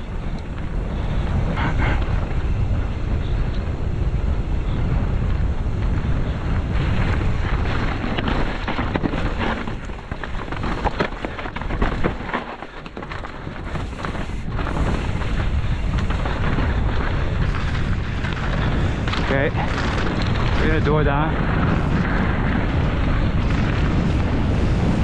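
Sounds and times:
wind rumbling over microphone: 0.0 - 25.0
tyres crunching over gravel: 6.7 - 25.0
bike clattering over rocks: 7.0 - 24.8.

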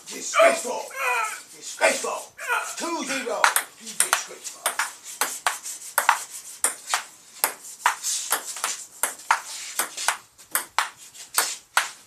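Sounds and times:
ping pong ball clicking: 6.0 - 11.9.

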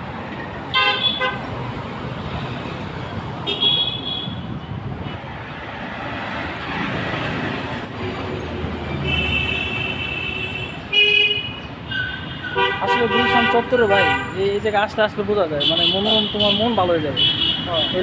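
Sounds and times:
road traffic passing: 0.0 - 18.0
vehicle horns tooting: 0.7 - 1.4, 3.4 - 4.5, 9.0 - 14.7, 15.6 - 18.0.

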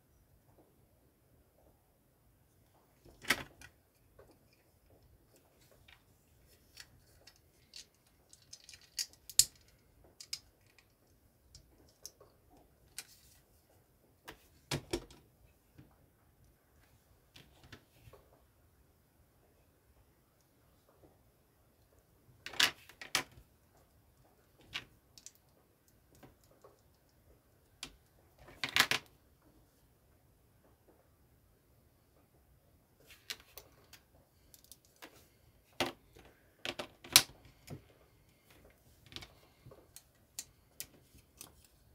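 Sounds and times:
plastic bricks clicking together: 6.7 - 12.3.

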